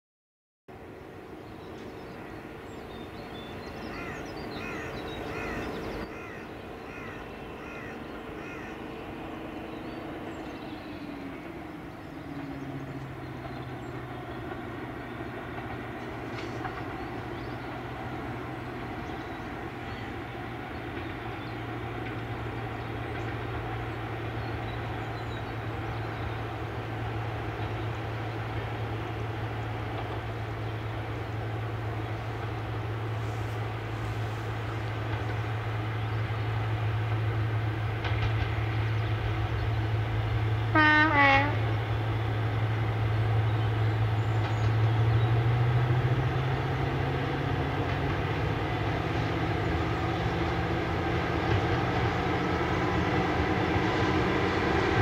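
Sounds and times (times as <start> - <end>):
diesel locomotive engine droning: 0.7 - 55.0
bird calling: 1.1 - 36.8.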